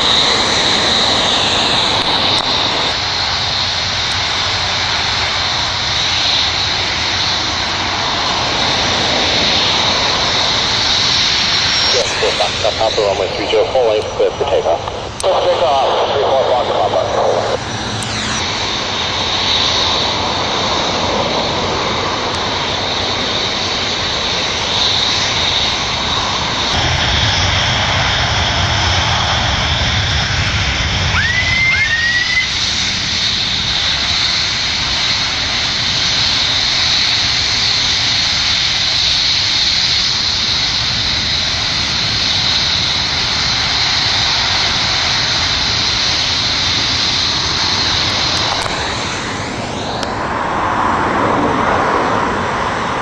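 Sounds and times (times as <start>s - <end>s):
propeller airplane engine: 0.0s - 53.0s
steady high whine: 0.0s - 53.0s
short rising chirps: 17.5s - 18.7s.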